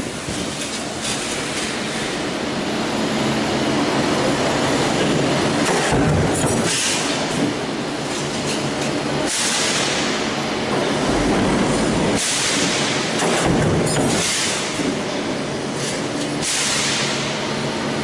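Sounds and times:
stamping press running: 0:09.3 - 0:16.1.

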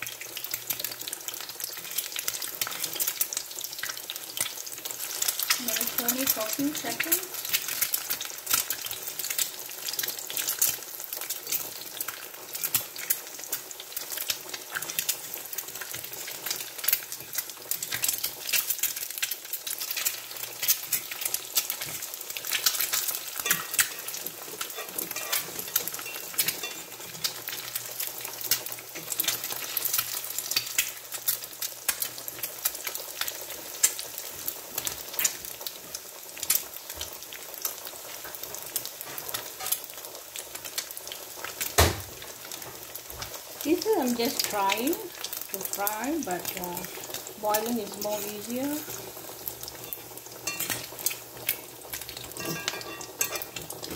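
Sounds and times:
eggs sizzling in hot oil: 0:00.0 - 0:53.9
metal fork scraping and tapping pan: 0:23.4 - 0:24.2, 0:24.8 - 0:27.2, 0:49.8 - 0:50.9, 0:52.4 - 0:53.6.

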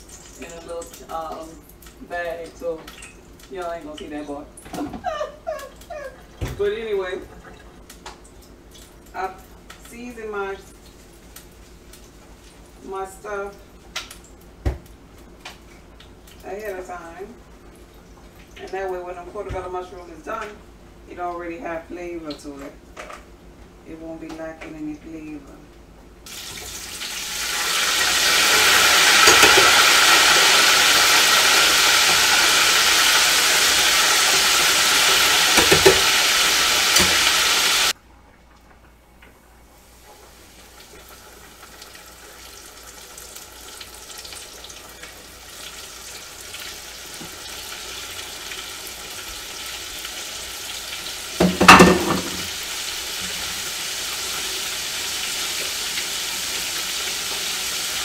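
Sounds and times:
food sizzling in deep fryer: 0:00.0 - 0:04.0, 0:26.2 - 0:38.0, 0:39.8 - 0:58.0.

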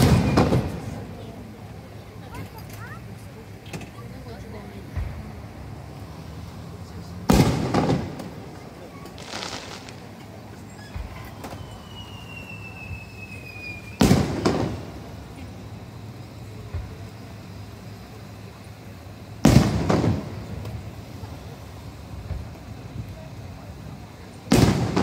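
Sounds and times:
descending firework whistle: 0:00.0 - 0:01.0, 0:09.1 - 0:15.0
faint firework pops: 0:07.3 - 0:15.0, 0:16.7 - 0:17.1, 0:19.4 - 0:20.8, 0:22.2 - 0:23.1, 0:24.5 - 0:25.0
firework shells bursting: 0:07.3 - 0:15.2, 0:19.4 - 0:20.9.

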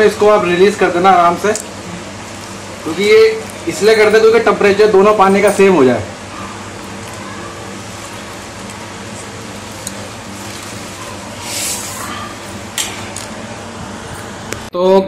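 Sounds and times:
aquarium filter humming: 0:00.0 - 0:15.0
water pouring into aquarium: 0:07.0 - 0:12.1.

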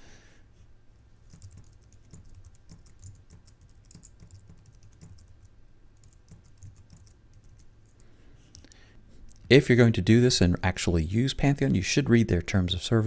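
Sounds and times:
computer keyboard typing: 0:01.3 - 0:09.5.

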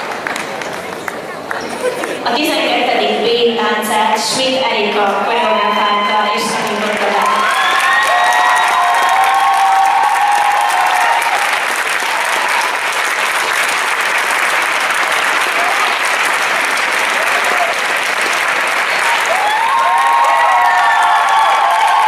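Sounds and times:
large crowd applauding: 0:00.0 - 0:02.2, 0:06.6 - 0:22.0
crowd voices: 0:00.0 - 0:08.5.

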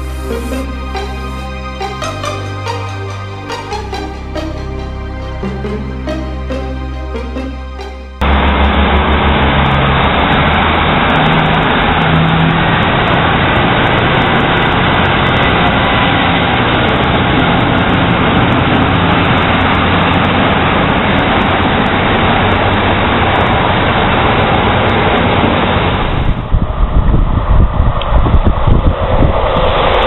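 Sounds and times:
diesel train engine droning: 0:00.0 - 0:30.0
wind on microphone: 0:25.3 - 0:30.0.

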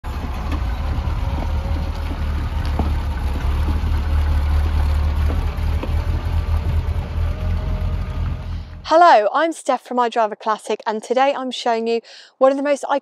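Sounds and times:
engine rumbling at low speed: 0:00.0 - 0:08.9.

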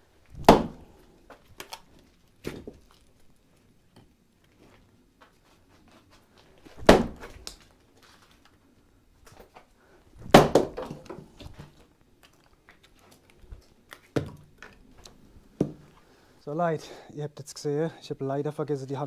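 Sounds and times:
wood cracking apart: 0:00.2 - 0:03.4
axe striking wood: 0:00.4 - 0:00.9, 0:06.8 - 0:07.4, 0:10.2 - 0:11.2.

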